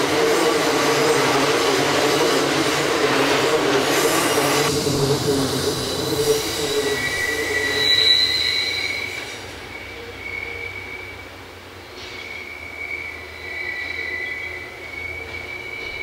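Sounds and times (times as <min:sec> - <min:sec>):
freight train rumbling past: 0:00.0 - 0:16.0
train wheels squealing: 0:03.0 - 0:11.4, 0:12.0 - 0:16.0.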